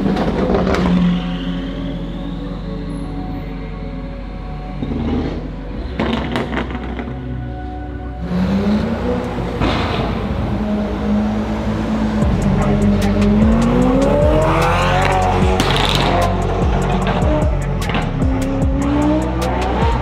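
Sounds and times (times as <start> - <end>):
car engines pulling away: 0.0 - 20.0
car engine revving up: 8.2 - 20.0
background music with a beat: 12.1 - 20.0.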